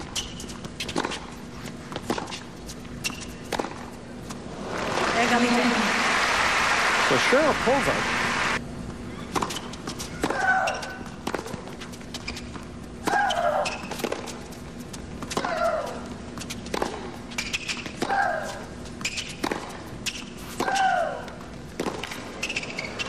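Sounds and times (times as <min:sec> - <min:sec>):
racket striking tennis ball: 0:03.0 - 0:03.9, 0:15.2 - 0:20.9.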